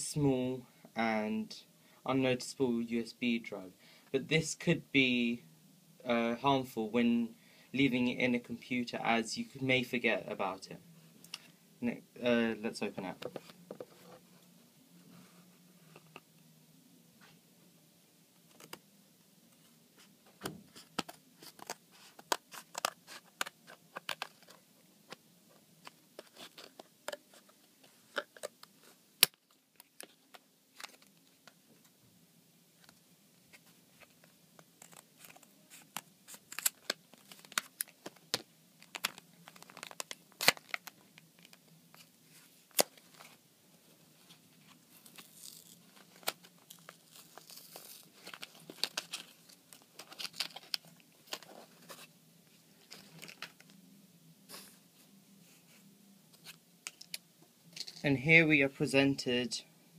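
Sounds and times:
cardboard and plastic tearing: 0:38.9 - 0:40.9, 0:45.0 - 0:51.5.

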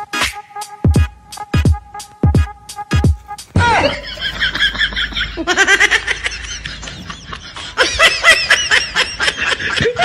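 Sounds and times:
high-pitched laughter: 0:03.7 - 0:10.0.

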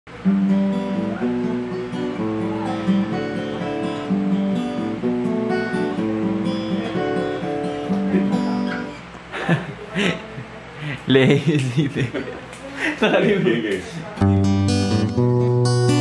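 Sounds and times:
acoustic guitar chords: 0:00.1 - 0:10.8, 0:14.2 - 0:16.0.

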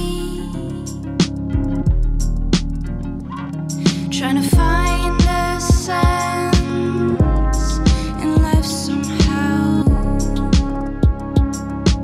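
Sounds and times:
hi-hats: 0:00.0 - 0:12.0
sustained keyboard chords: 0:00.0 - 0:12.0
deep electronic kick drum: 0:01.4 - 0:03.0, 0:04.6 - 0:12.0.

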